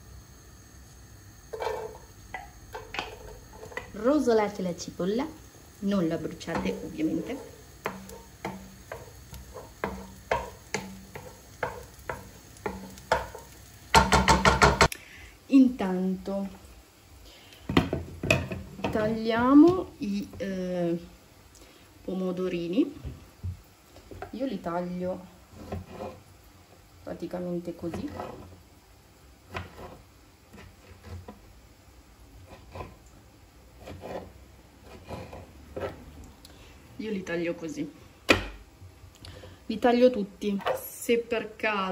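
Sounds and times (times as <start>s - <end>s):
onion sizzling in oil: 0.0s - 41.9s
wooden spoon knocking on pan: 1.5s - 3.9s, 6.4s - 14.9s, 17.7s - 20.4s.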